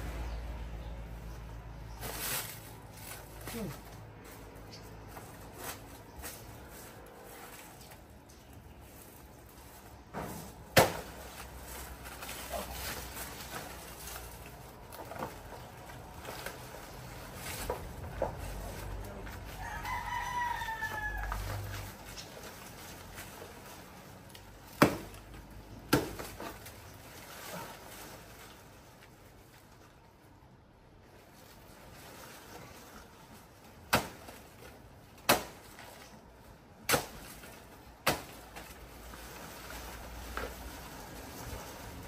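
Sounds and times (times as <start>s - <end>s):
rooster crowing: 19.5s - 21.8s.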